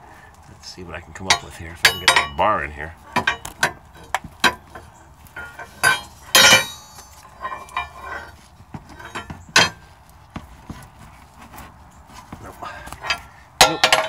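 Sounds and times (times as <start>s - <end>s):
metal clank: 1.2s - 2.5s, 3.1s - 9.9s, 12.8s - 14.0s
pry bar clinking against metal: 1.3s - 2.5s, 3.2s - 3.8s, 5.4s - 8.1s, 13.0s - 14.0s.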